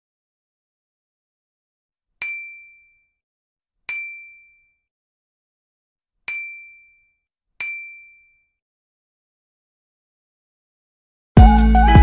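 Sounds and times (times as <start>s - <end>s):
bell-like dings: 2.2s - 3.2s, 3.9s - 4.9s, 6.3s - 8.6s.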